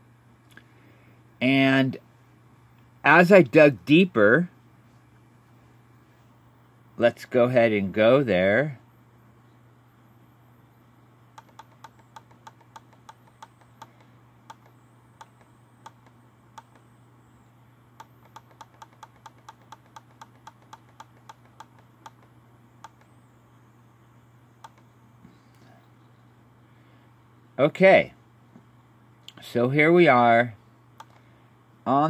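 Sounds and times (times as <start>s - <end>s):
faint low hum: 0.0s - 32.0s
computer mouse button clicking: 11.4s - 16.8s, 18.0s - 23.1s, 24.6s - 24.9s, 31.0s - 31.2s.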